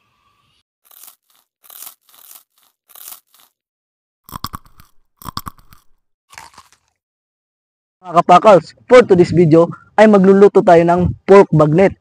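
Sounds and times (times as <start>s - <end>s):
crunchy chewing: 0.8s - 3.7s, 4.3s - 7.0s.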